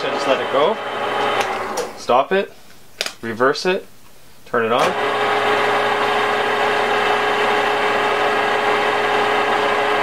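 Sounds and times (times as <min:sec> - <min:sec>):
metal lathe humming: 0:00.0 - 0:02.0, 0:04.9 - 0:10.0.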